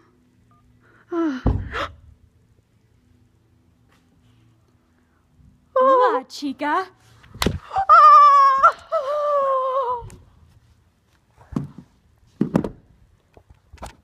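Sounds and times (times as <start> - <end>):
high-pitched wailing voice: 7.7 - 10.1.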